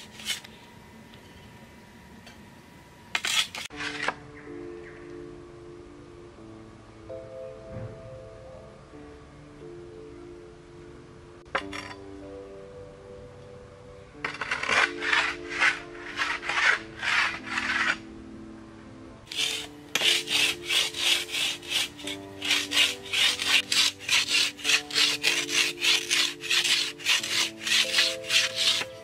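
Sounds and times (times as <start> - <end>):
knife rasping on wooden stick: 3.2 - 3.7, 14.4 - 18.0, 19.3 - 29.0.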